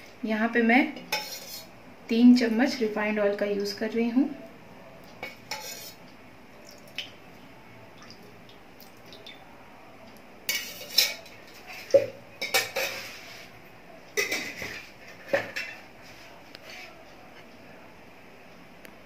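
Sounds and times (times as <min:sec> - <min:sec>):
metal ladle clinking and scraping: 0:01.1 - 0:01.7, 0:05.2 - 0:06.0, 0:10.5 - 0:13.5.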